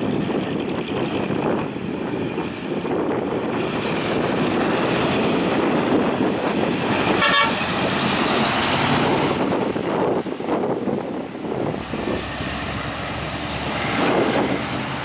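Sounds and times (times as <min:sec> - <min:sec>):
dump truck driving past: 0:00.1 - 0:15.0
truck horn toot: 0:07.1 - 0:07.8.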